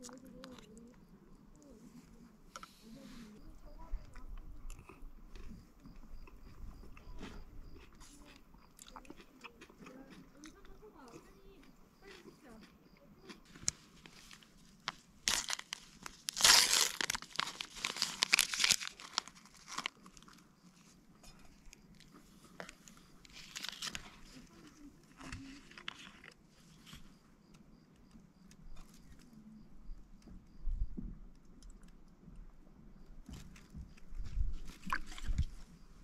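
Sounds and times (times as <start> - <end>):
crinkling and rustling: 13.4 - 27.6.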